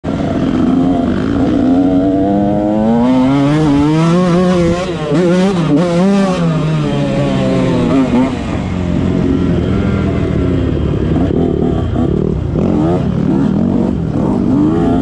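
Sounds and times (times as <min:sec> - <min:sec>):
motorcycle engine accelerating: 0:00.1 - 0:15.0.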